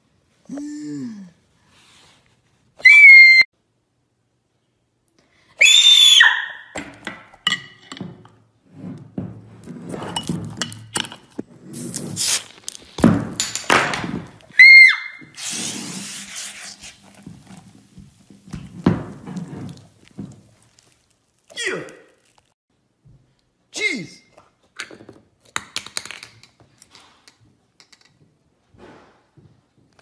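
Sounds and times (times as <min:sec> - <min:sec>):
bottle foaming over hiss: 0:11.7 - 0:12.6, 0:15.3 - 0:21.0
knocks and thumps: 0:12.9 - 0:14.4.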